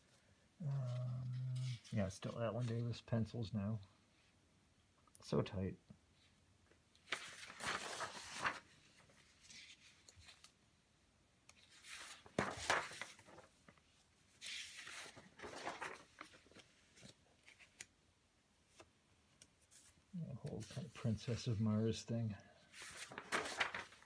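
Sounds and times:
paper sheets rustling: 7.0s - 10.6s, 11.6s - 17.9s, 22.6s - 24.0s.

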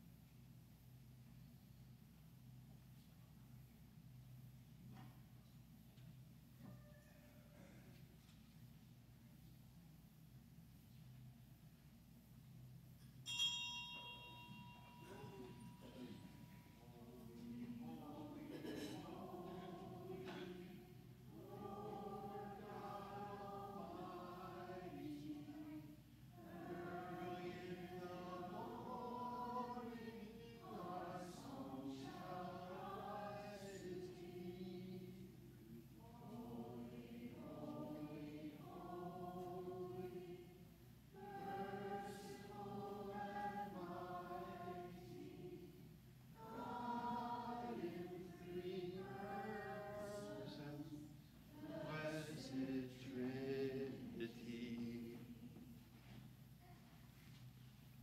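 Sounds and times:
congregation singing a hymn: 15.0s - 56.2s.

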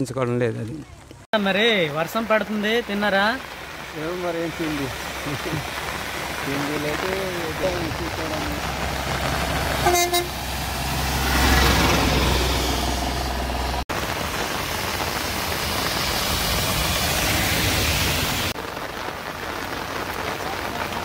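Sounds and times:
vehicle engine rumble: 0.0s - 21.0s
heavy rain hissing: 1.4s - 21.0s.

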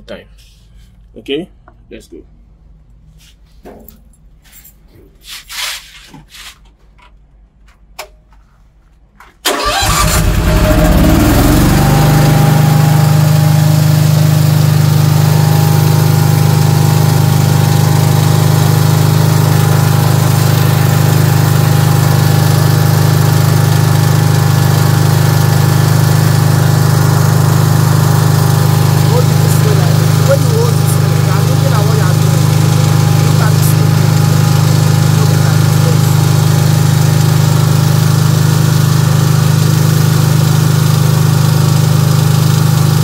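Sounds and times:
generator engine starting and running: 9.4s - 43.0s.

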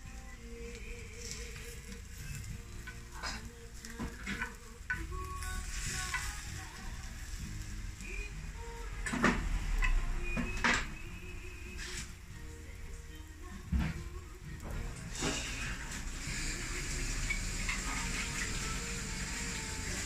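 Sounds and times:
omelette sizzling in a pan: 0.0s - 8.9s, 14.8s - 20.0s.

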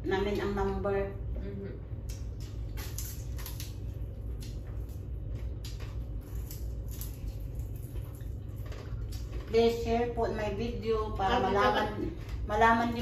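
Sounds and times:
steady low hum: 0.0s - 13.0s
chewing and mouth noises: 2.0s - 9.7s.

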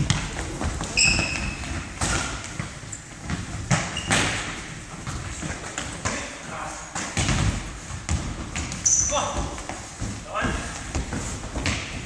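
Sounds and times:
ball kicks and thuds: 0.0s - 6.3s, 7.0s - 12.0s
shoes squeaking on floor: 0.0s - 6.3s, 8.6s - 9.6s.

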